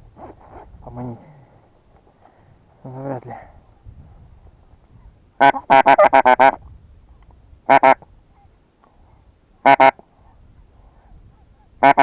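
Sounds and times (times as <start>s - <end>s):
goose call honks: 5.4s - 6.6s, 7.7s - 8.0s, 9.6s - 10.0s, 11.8s - 12.0s.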